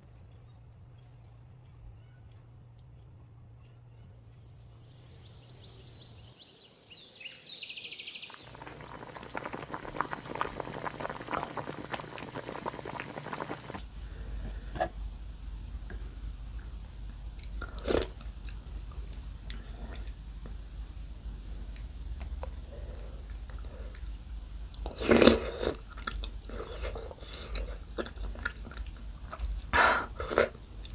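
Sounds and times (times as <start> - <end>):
loud slurp from spoon: 24.9 - 25.8.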